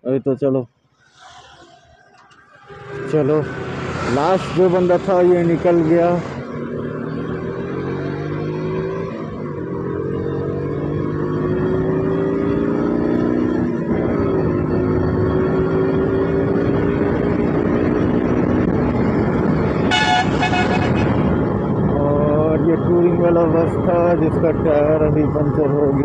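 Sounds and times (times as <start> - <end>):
rushing wind noise: 11.8 - 26.0.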